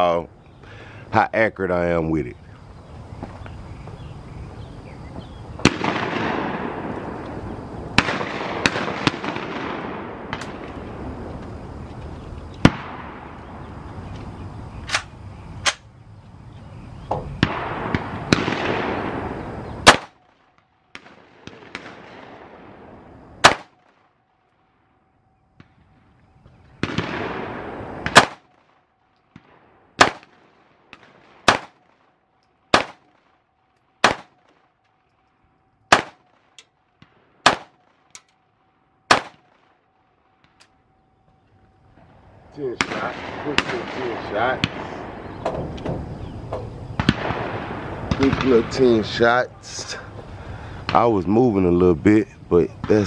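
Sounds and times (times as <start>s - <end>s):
single gunshots: 5.6s - 7.3s, 7.9s - 11.1s, 12.6s - 13.6s, 17.4s - 20.3s, 20.9s - 24.0s, 26.8s - 28.7s, 29.3s - 32.0s, 32.7s - 33.3s, 34.0s - 34.6s, 35.9s - 38.0s, 39.1s - 39.8s, 42.6s - 46.1s, 46.9s - 49.4s.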